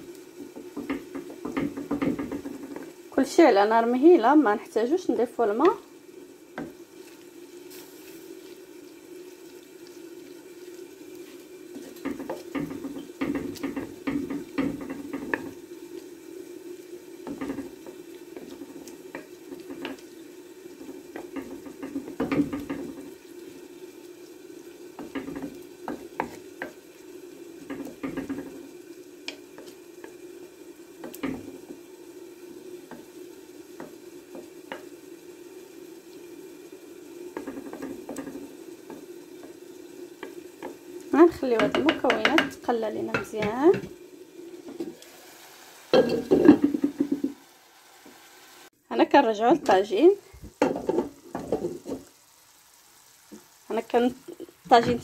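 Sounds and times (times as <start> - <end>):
gentle frying sizzle: 0.0 - 55.0
spoon knocking against pot: 0.4 - 2.8, 12.0 - 15.6, 17.2 - 20.0, 20.8 - 23.1, 25.0 - 26.8, 27.6 - 28.6, 31.0 - 31.6, 37.4 - 39.0, 41.6 - 44.0, 46.0 - 47.4, 50.6 - 52.1.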